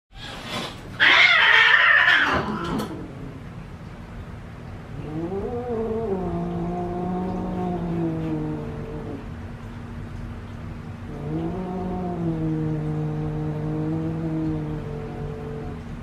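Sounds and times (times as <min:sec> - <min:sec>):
cat harsh cry: 0:01.0 - 0:02.9.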